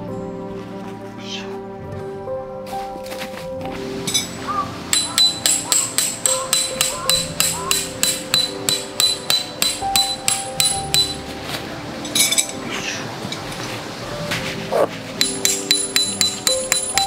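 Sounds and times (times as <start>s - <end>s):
hammer striking metal tent peg: 4.1s - 11.3s, 15.2s - 17.0s.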